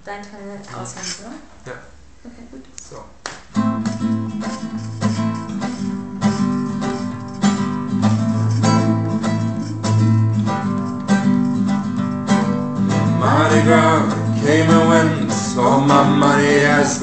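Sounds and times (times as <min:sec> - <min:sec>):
acoustic guitar strumming: 0:03.5 - 0:17.0.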